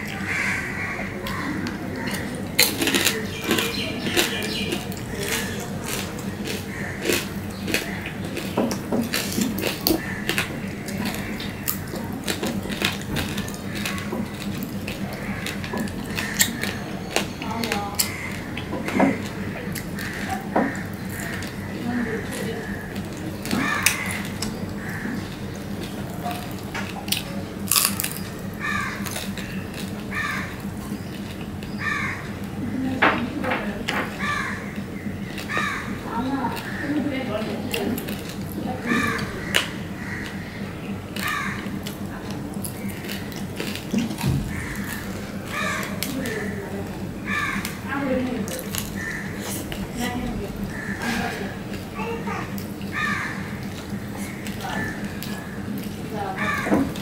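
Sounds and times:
fingers mixing rice on steel plate: 0.0 - 32.4
bird calling: 0.0 - 57.0
low steady hum: 0.0 - 57.0
chewing with wet mouth clicks: 1.2 - 32.5, 34.0 - 40.4, 41.1 - 56.1.

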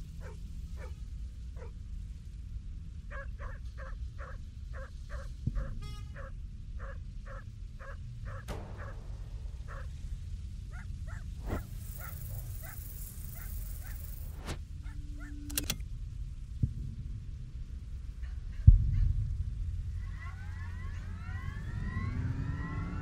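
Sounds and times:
low steady rumble: 0.0 - 23.0
dog barking: 0.2 - 1.0, 1.6 - 1.8, 3.1 - 9.0, 9.7 - 9.9, 10.7 - 14.2, 14.8 - 15.5
sharp knock: 8.5 - 9.9.

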